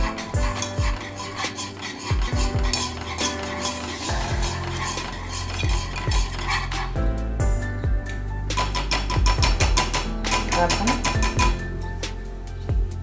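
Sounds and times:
whisk scraping a saucepan: 0:00.0 - 0:06.9.

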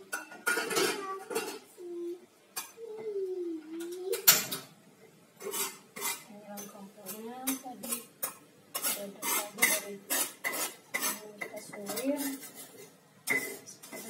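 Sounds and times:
utensil scraping a metal pot: 0:05.4 - 0:14.0.

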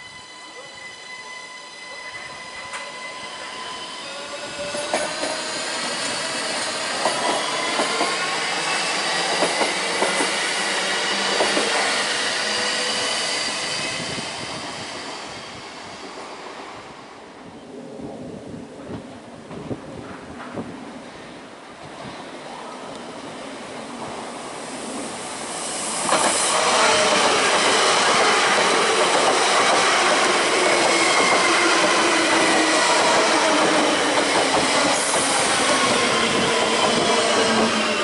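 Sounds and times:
electric train drive whining: 0:25.4 - 0:38.0.

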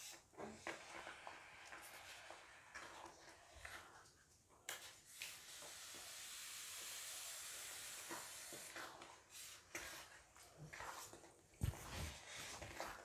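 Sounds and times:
spatula scraping porridge in a wok: 0:00.0 - 0:04.1, 0:05.2 - 0:13.0
faint steady hiss: 0:00.0 - 0:10.4.

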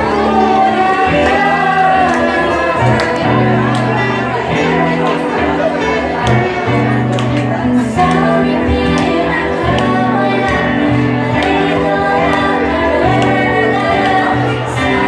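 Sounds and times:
devotional song with accompaniment: 0:00.0 - 0:15.0.

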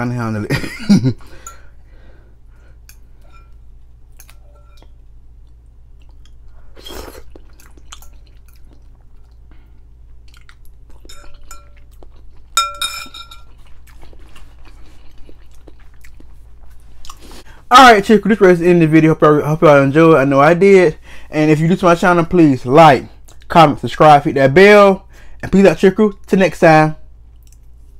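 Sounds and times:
fork clinking glass bowl: 0:02.9 - 0:03.6, 0:04.2 - 0:05.0, 0:11.0 - 0:12.0, 0:12.6 - 0:13.7
person chewing noodles: 0:05.3 - 0:17.6, 0:27.3 - 0:27.9.

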